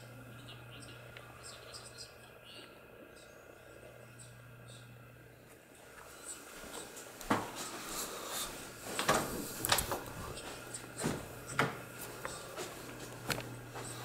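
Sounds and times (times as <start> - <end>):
footsteps on carpet: 5.9 - 14.0.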